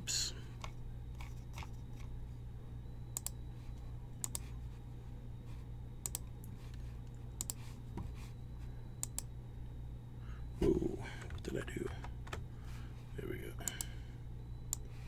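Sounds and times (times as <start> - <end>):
low steady hum: 0.0 - 15.0
computer mouse clicking: 3.2 - 3.4, 4.2 - 4.5, 6.0 - 6.5, 7.4 - 7.6, 9.0 - 9.3.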